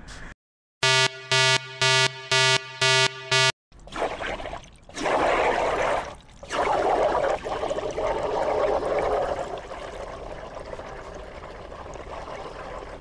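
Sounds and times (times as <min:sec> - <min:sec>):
gas bubbling through soapy water: 0:04.2 - 0:13.0.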